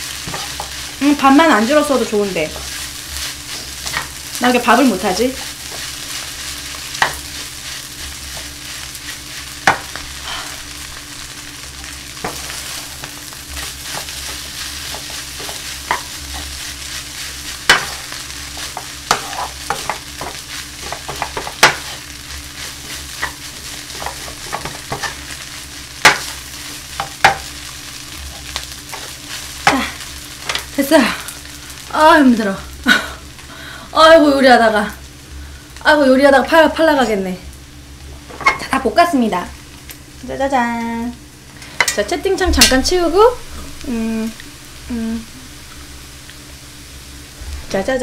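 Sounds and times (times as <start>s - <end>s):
rice sizzling in frying pan: 0.0s - 48.0s
spatula knocking and scraping pan: 0.2s - 1.0s, 2.5s - 4.2s, 5.4s - 7.5s, 9.6s - 10.1s, 12.2s - 22.0s, 22.6s - 25.3s, 26.0s - 26.4s, 27.0s - 27.5s.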